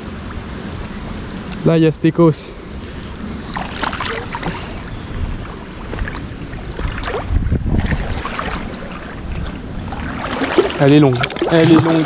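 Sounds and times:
wind rumbling on microphone: 0.0s - 12.0s
fish splashing in water: 3.5s - 4.8s, 5.9s - 12.0s.

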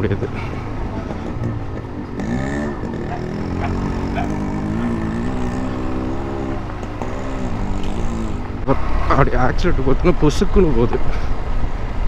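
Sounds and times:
motorcycle engine revving: 0.4s - 9.4s.

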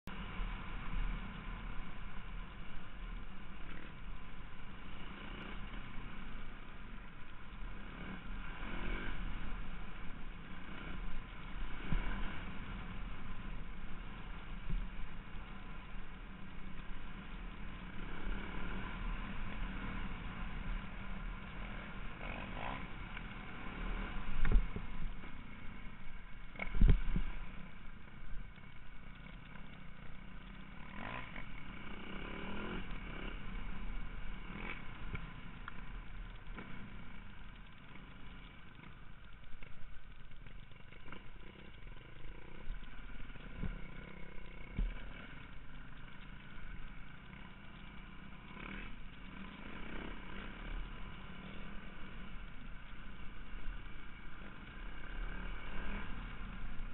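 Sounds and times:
motorcycle engine revving: 0.0s - 56.9s.

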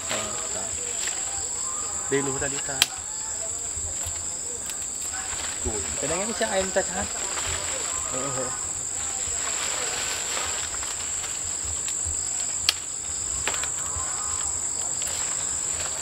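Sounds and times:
insect chorus drone: 0.0s - 16.0s
sharp clicks: 2.6s - 3.0s.

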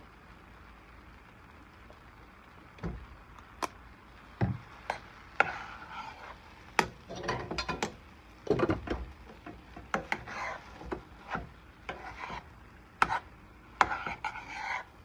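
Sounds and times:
metal spoon scraping pan: 4.9s - 8.0s, 9.3s - 14.9s.

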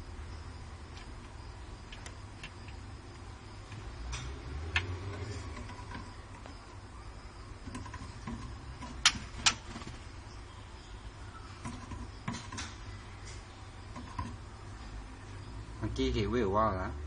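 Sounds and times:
steady low hum: 0.0s - 17.0s
sharp clicks: 0.9s - 5.0s
faint clicks and ticks: 0.9s - 6.7s.

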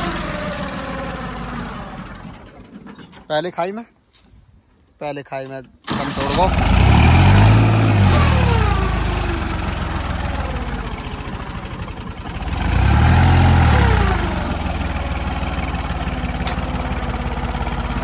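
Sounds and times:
tractor diesel engine running: 0.0s - 3.2s, 5.8s - 18.0s.

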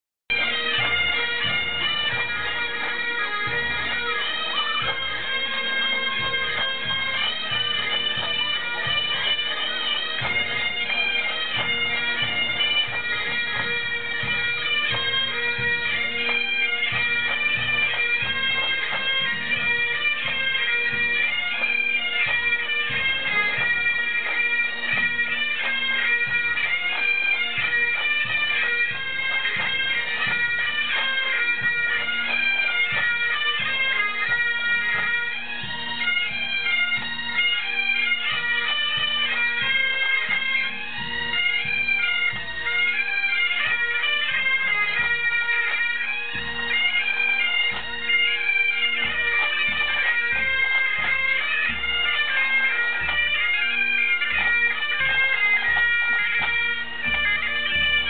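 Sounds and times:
drums beating: 0.3s - 37.2s, 38.3s - 42.6s
bagpipes playing: 0.3s - 58.0s.

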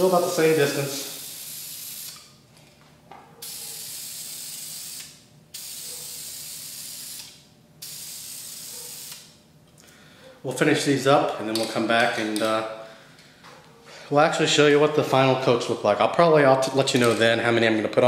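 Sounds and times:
aerosol paint spraying: 0.0s - 2.3s, 3.4s - 9.4s.

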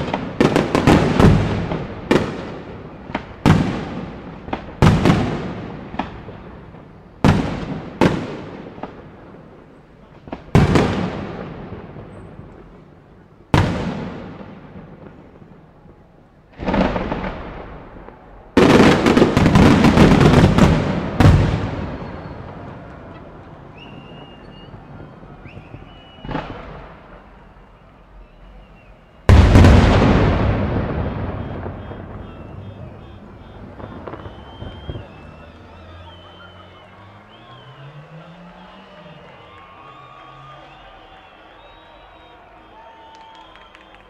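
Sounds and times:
firework shells bursting: 29.3s - 37.7s.

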